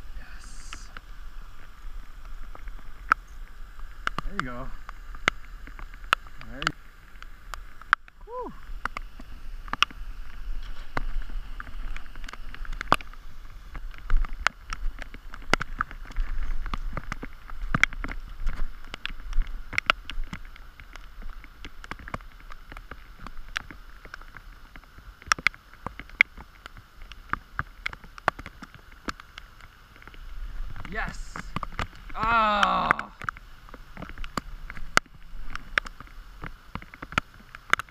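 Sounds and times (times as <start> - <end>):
rain hissing on water: 0.0 - 37.9
raindrops tapping: 0.0 - 37.9.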